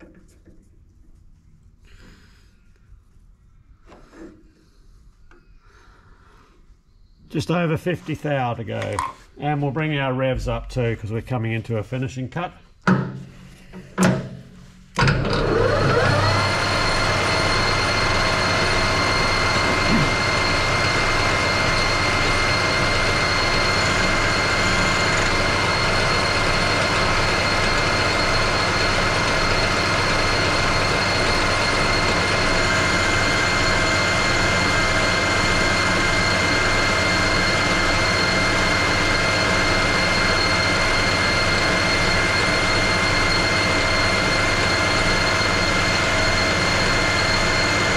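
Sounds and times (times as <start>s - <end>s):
metal lathe whining: 15.0s - 47.9s.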